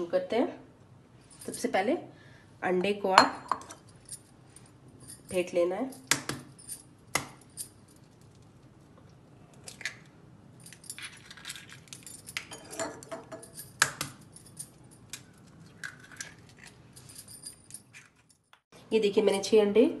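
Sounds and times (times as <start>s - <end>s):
bangles jingling: 10.6s - 18.6s.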